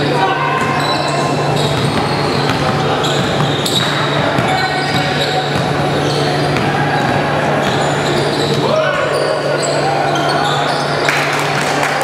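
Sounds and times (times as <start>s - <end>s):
sneakers squeaking: 0.3s - 11.3s
basketball bouncing: 1.6s - 8.6s.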